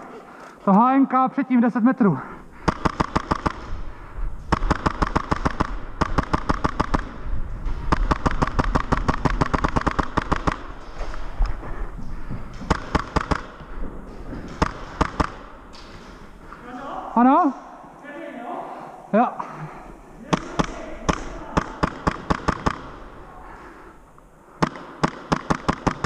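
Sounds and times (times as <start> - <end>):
airsoft gun firing on full auto: 2.6 - 3.7, 4.5 - 7.2, 7.9 - 10.7, 12.7 - 13.6, 14.6 - 15.5, 20.3 - 23.0, 24.6 - 26.0.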